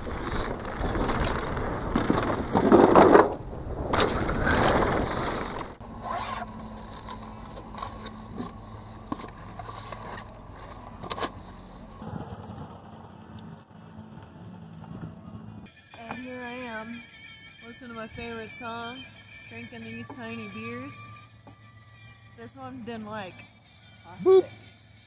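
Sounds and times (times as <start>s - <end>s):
wind on microphone: 0.0s - 5.8s
bike tyre and frame rattle: 0.0s - 15.2s.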